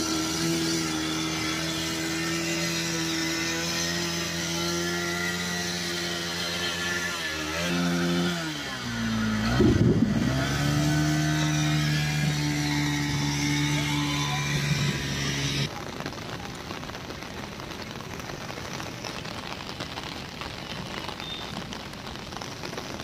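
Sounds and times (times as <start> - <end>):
motorcycle engine revving: 0.0 - 15.7
heavy rain hissing: 0.0 - 23.0.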